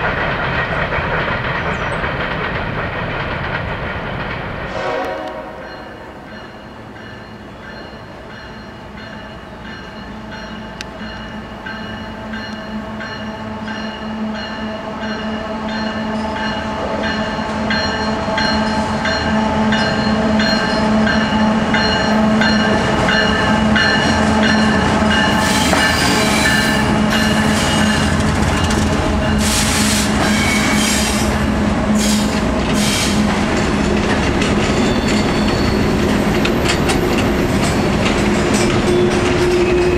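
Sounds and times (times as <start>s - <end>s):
diesel locomotive engine drone: 0.0s - 39.9s
train wheels screeching on rails: 0.0s - 39.9s.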